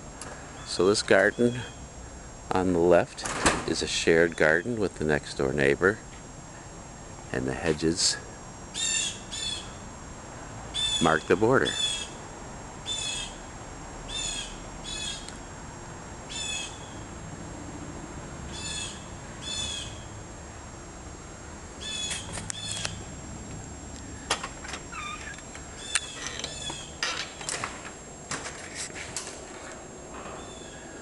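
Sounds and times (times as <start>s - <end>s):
bird calling: 8.7s - 9.8s, 10.8s - 11.1s, 11.7s - 12.2s, 16.3s - 17.0s, 18.5s - 20.1s, 21.8s - 23.0s, 24.9s - 27.0s, 30.4s - 30.9s.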